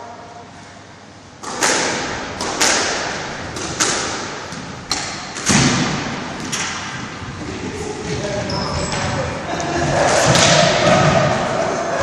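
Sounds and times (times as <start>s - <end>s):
ball hitting court walls: 1.4s - 9.3s, 9.9s - 11.6s
racket striking squash ball: 1.4s - 9.3s, 10.1s - 11.5s.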